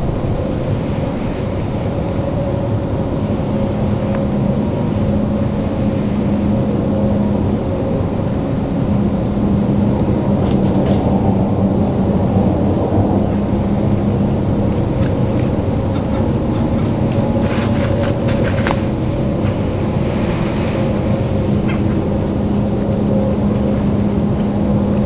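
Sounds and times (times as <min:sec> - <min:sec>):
engine droning: 0:00.0 - 0:25.0.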